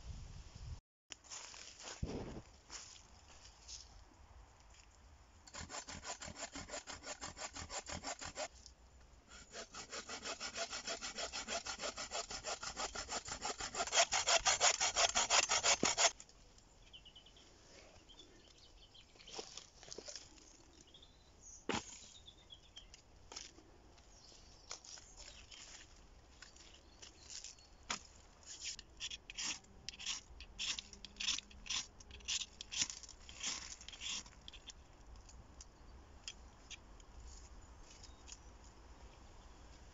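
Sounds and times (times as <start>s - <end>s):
hand saw cutting branch: 5.5s - 8.5s, 9.3s - 16.2s, 28.6s - 34.6s.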